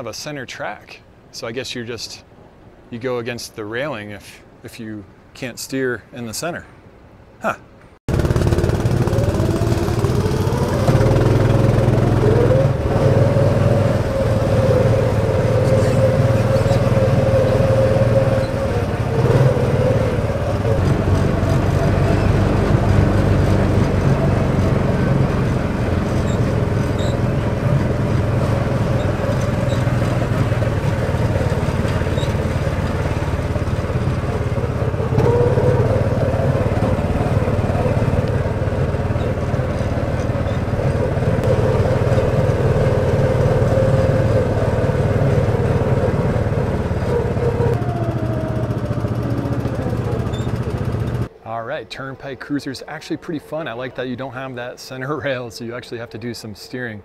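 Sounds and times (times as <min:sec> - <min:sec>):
small engine whining: 0:08.1 - 0:51.4.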